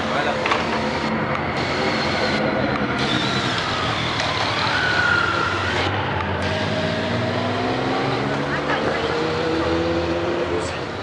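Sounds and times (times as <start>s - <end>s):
motorcycles passing at low speed: 0.0s - 11.0s.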